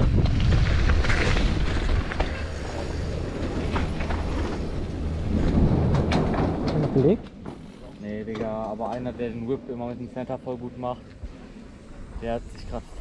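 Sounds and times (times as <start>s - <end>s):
wind buffeting microphone: 0.0s - 7.4s
tyre rumble on dirt trail: 0.0s - 7.8s
bike knocks and rattles: 0.0s - 9.4s.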